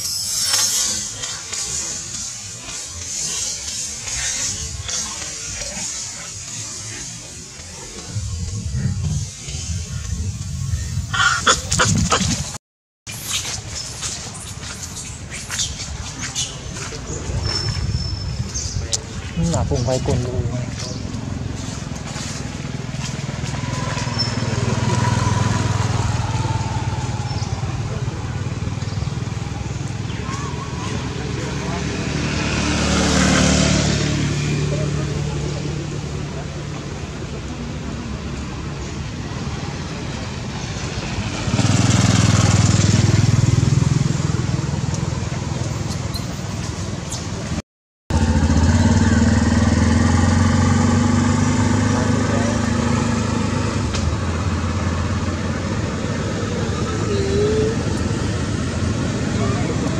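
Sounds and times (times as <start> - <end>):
vehicle engine running: 48.1 - 59.9.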